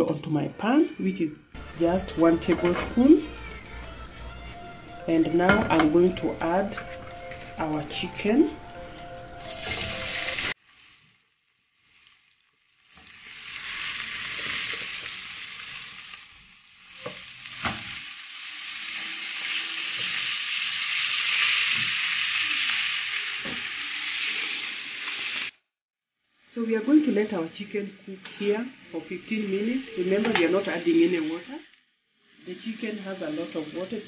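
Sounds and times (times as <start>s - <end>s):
chicken sizzling in hot oil: 5.3s - 25.6s, 28.2s - 34.0s.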